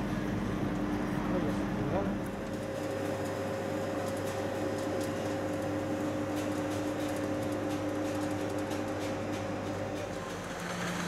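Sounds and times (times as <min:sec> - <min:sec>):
train cooling fans humming: 0:00.0 - 0:11.0.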